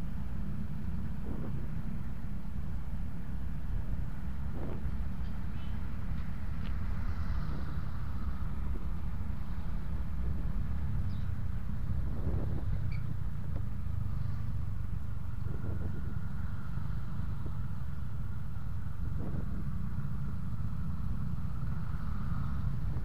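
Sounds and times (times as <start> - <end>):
faint steady whine: 0.0 - 23.0
passing motorcycles: 0.2 - 23.0.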